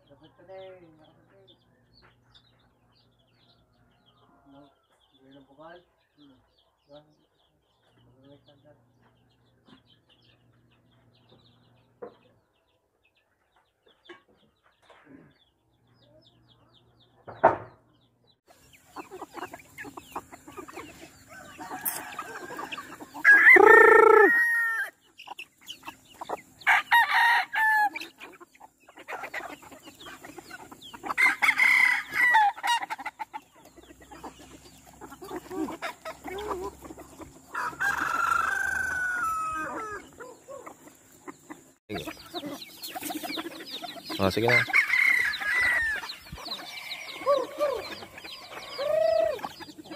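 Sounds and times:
chickens clucking: 0.0s - 49.9s
sharp knock: 17.3s - 17.7s
roosters crowing: 18.8s - 25.3s, 26.0s - 49.9s.

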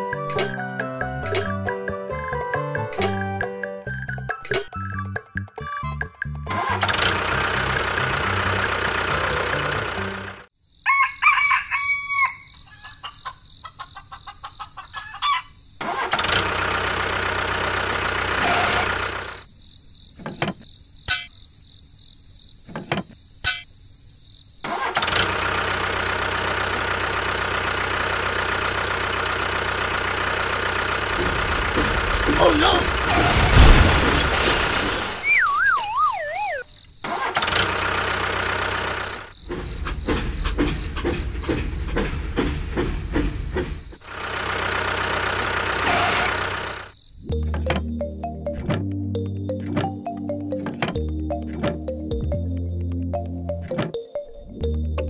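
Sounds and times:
engine running: 6.4s - 10.5s, 15.8s - 19.4s, 24.7s - 35.2s, 37.0s - 54.0s
rooster crowing: 10.8s - 15.5s.

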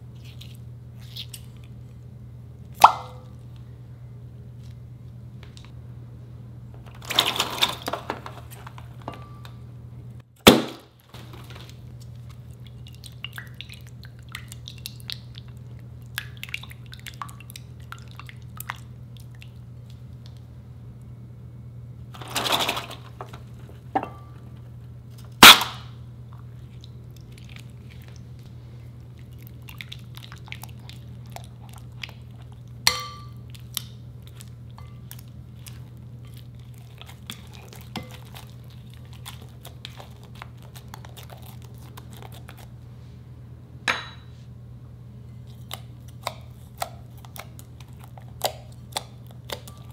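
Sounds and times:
loud sharp cracks: 10.4s - 10.9s, 25.4s - 25.9s
spatula stirring: 34.4s - 42.7s.

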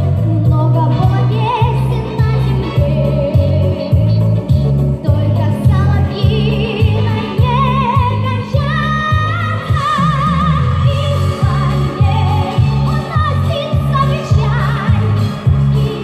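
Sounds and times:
backing track with pulsing bass: 0.0s - 16.0s
boy singing with vibrato: 5.0s - 16.0s.

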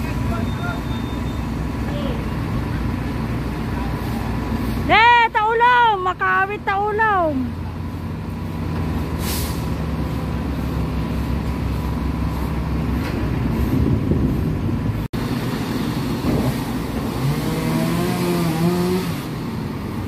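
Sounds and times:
diesel truck engines running: 0.0s - 20.0s
engine revving: 15.3s - 20.0s.

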